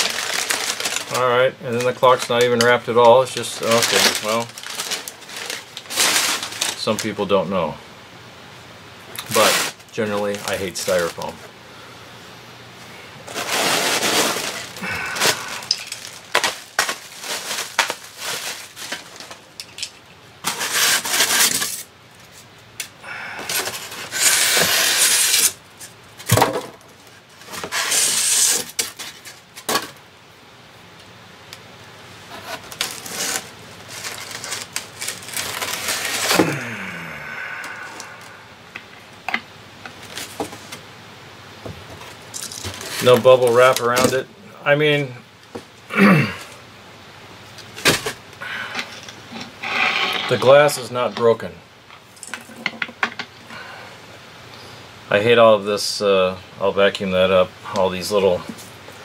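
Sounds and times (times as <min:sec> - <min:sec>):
styrofoam squeaking against cardboard: 0:03.5 - 0:06.8, 0:23.8 - 0:25.6, 0:27.6 - 0:29.2, 0:32.3 - 0:36.4.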